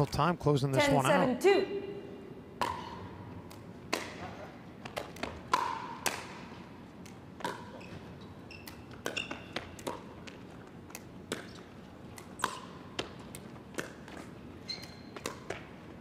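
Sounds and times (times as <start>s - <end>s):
paddles hitting plastic ball: 2.6s - 8.0s, 8.6s - 16.0s
short high squeaks: 14.6s - 15.1s.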